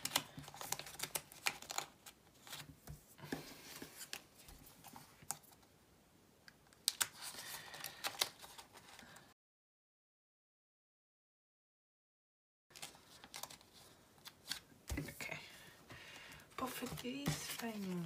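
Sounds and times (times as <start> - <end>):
plastic sleeves rustling: 0.0 - 5.6, 6.8 - 9.3, 12.7 - 18.0.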